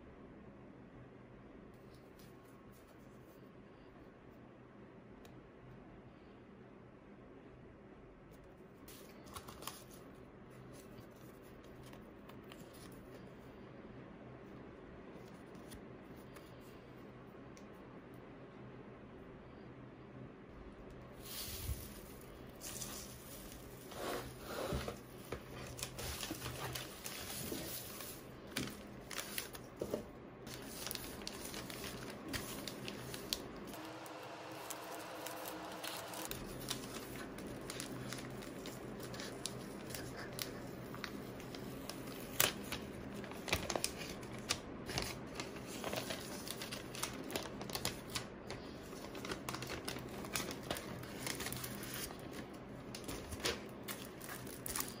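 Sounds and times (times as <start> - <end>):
paper rustling and crinkling: 8.8 - 13.4, 21.2 - 55.0
paper tearing: 30.5 - 43.9.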